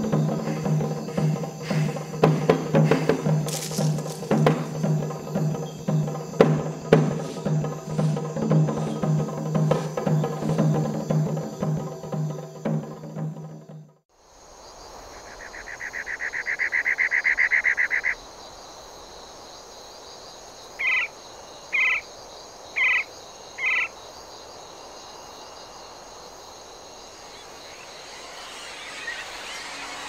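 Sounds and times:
high insect drone: 0.0s - 30.0s
rapid pulsing trill: 27.2s - 30.0s.

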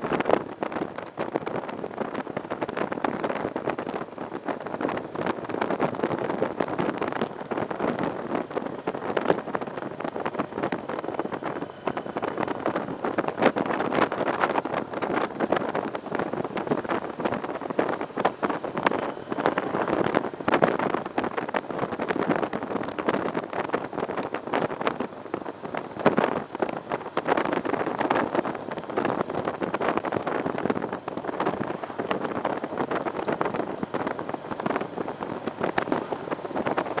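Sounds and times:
motorcycle running: 0.0s - 37.0s
wind buffeting microphone: 0.0s - 37.0s.

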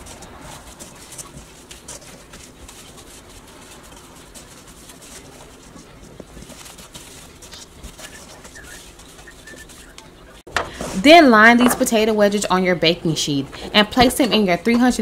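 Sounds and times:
wet rustling and squishing: 0.0s - 10.1s.

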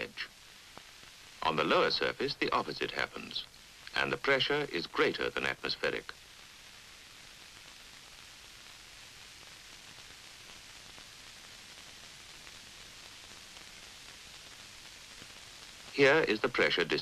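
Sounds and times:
steady background hiss: 0.0s - 17.0s.

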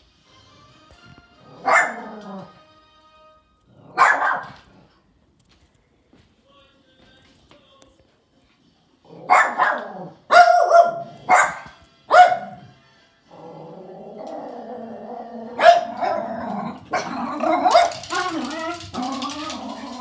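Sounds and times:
small dog barking: 1.5s - 2.2s, 3.8s - 4.8s, 9.2s - 12.7s, 15.6s - 18.3s
dog growling: 1.5s - 2.6s, 9.0s - 10.2s, 13.3s - 20.0s.

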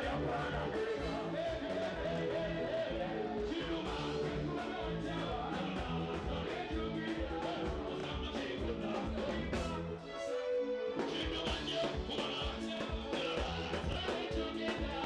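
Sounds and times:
bass line: 0.0s - 10.0s, 11.2s - 15.0s
live band music: 0.0s - 15.0s
person singing: 0.0s - 15.0s
drum beat: 3.9s - 9.8s, 11.3s - 15.0s.

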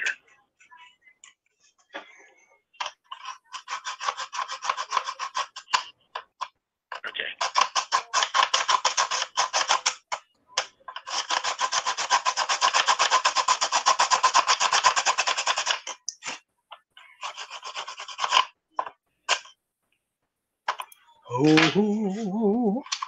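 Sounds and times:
rapid back-and-forth scraping: 3.1s - 5.8s, 11.1s - 15.9s.

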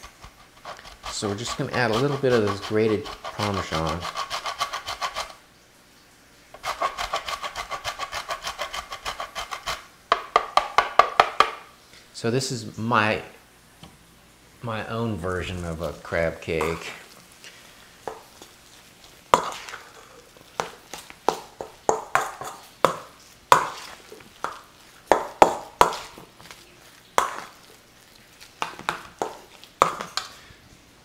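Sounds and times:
metal utensil scraping steel bowl: 0.6s - 5.4s, 19.3s - 20.7s.

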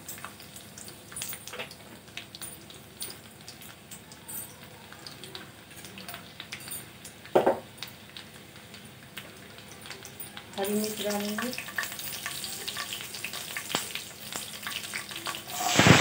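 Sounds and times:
hot oil sizzling with crackles: 0.0s - 16.0s
knock: 7.4s - 7.6s.

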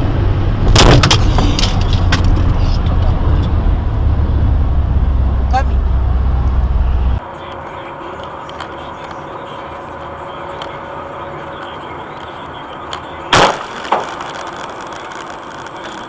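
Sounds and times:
car road noise: 0.0s - 16.0s
windshield shattering crash: 0.7s - 2.3s.

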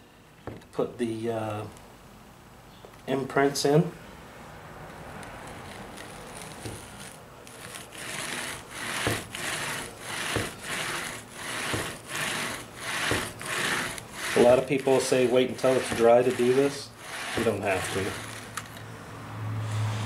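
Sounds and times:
model train wheels rolling and rubbing: 5.2s - 18.8s.

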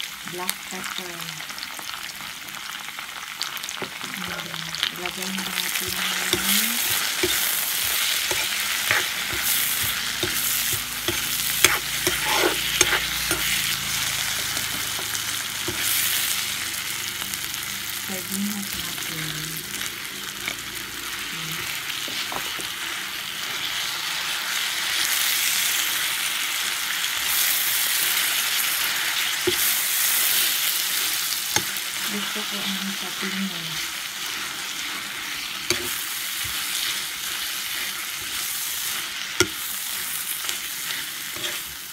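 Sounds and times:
food sizzling in wok: 0.0s - 41.9s
metal spatula scraping pan: 5.8s - 16.1s, 34.3s - 41.8s.

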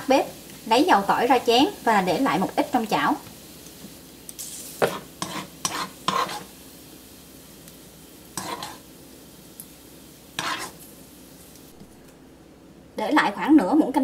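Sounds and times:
hot oil sizzling: 0.0s - 12.0s
metal spoon scraping a wok: 4.4s - 6.5s, 8.3s - 8.9s, 10.4s - 10.8s.

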